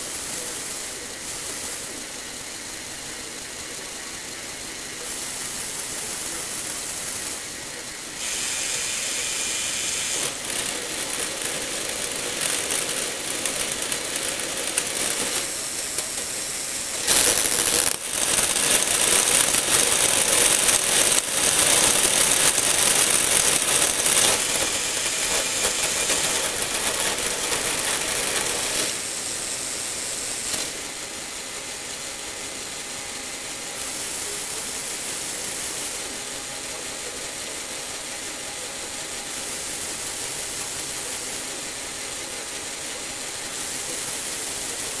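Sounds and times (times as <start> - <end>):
plastic gears whirring and clattering: 8.2 - 29.1, 30.3 - 31.0.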